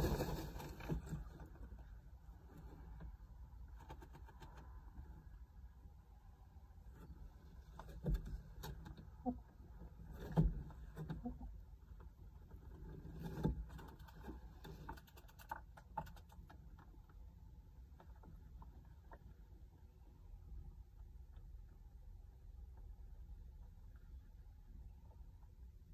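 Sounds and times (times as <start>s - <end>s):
hens rustling: 0.0s - 3.2s.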